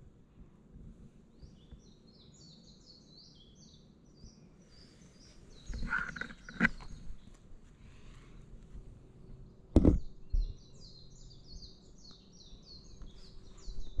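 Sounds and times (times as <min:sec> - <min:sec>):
outdoor background noise: 0:00.0 - 0:14.0
songbird singing: 0:01.2 - 0:14.0
sharp knock from handling: 0:09.8 - 0:10.1.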